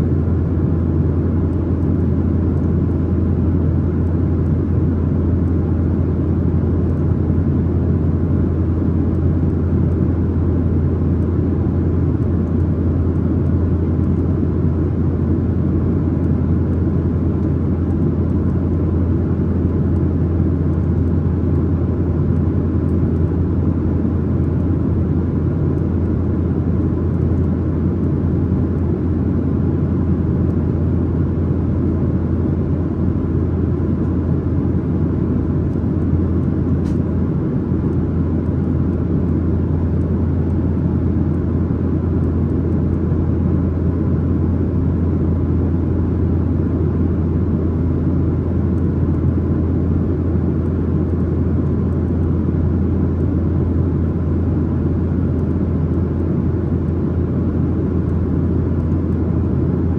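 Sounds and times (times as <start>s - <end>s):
jet engine rumble: 0.0s - 59.9s.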